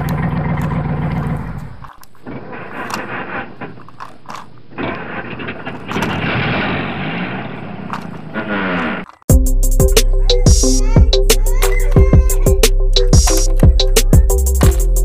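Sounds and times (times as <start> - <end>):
toy truck rattling on stones: 0.0 - 6.2
electronic music: 9.3 - 15.0.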